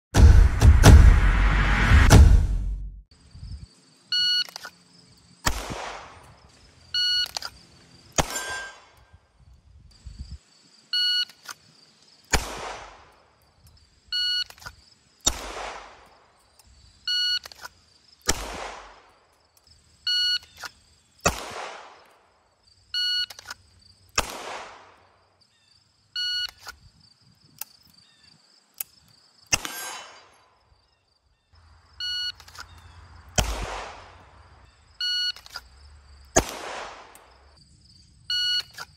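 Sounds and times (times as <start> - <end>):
pistol shot with echo: 5.4 - 6.2, 8.2 - 8.9, 12.3 - 13.1, 15.3 - 16.0, 18.3 - 19.1, 21.2 - 22.0, 24.2 - 25.0, 29.5 - 30.3, 33.4 - 34.2, 36.4 - 37.3.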